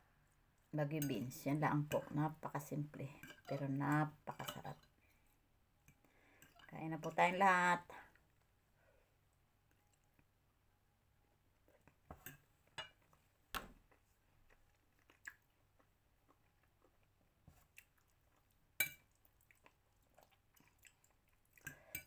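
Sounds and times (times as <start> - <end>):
chewing noodles: 13.9 - 22.0.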